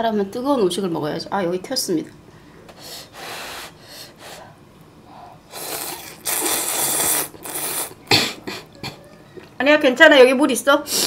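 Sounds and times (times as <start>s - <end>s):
person slurping noodles: 5.5s - 9.0s
person coughing: 8.1s - 9.1s.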